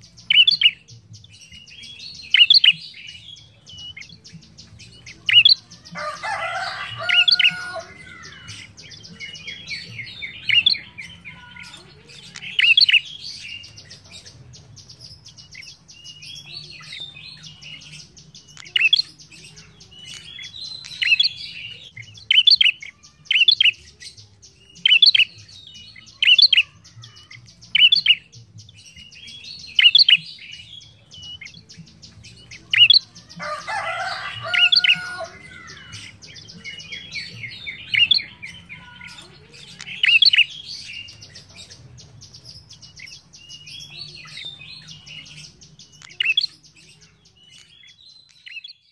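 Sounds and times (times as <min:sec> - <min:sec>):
bird chattering: 0:02.3 - 0:24.0, 0:32.4 - 0:48.7.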